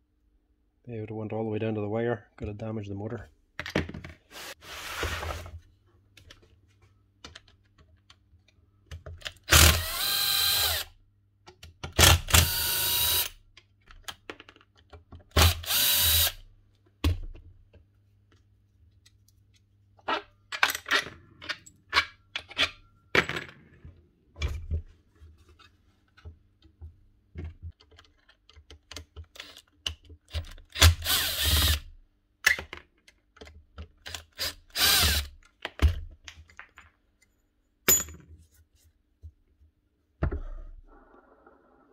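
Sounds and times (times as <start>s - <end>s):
cordless drill whirring: 9.5s - 10.9s, 12.4s - 13.3s, 15.4s - 16.4s, 31.0s - 31.8s, 34.4s - 35.3s.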